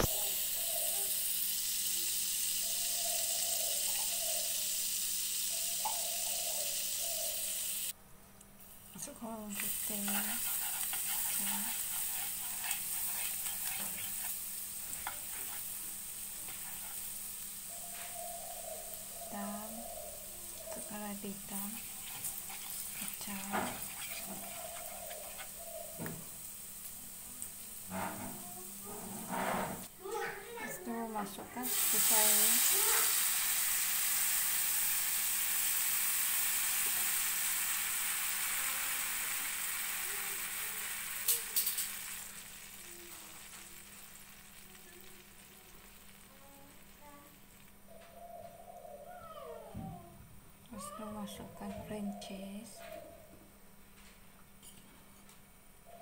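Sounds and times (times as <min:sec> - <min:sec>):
margarine sizzling in a wok: 0:00.0 - 0:08.0, 0:08.6 - 0:47.9
spatula scraping pan: 0:09.6 - 0:15.8, 0:16.4 - 0:17.2, 0:20.6 - 0:26.2, 0:27.8 - 0:29.9.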